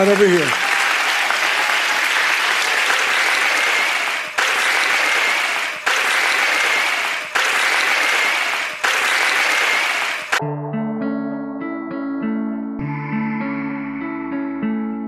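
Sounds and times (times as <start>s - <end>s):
congregation applauding: 0.0s - 10.4s.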